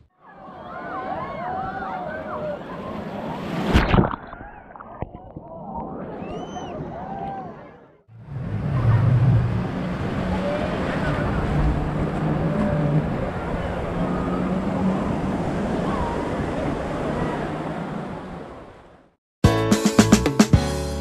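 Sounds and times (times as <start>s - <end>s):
surf washing: 0.3s - 19.1s
jet ski engine running: 8.2s - 18.4s
wind buffeting microphone: 8.3s - 18.8s.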